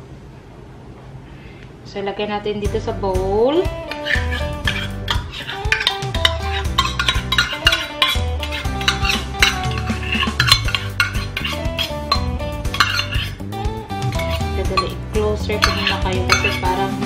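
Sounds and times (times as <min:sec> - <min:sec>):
background music: 0:02.4 - 0:17.0
metal cup tapping a bowl: 0:04.7 - 0:11.5, 0:12.1 - 0:13.3, 0:14.1 - 0:16.8.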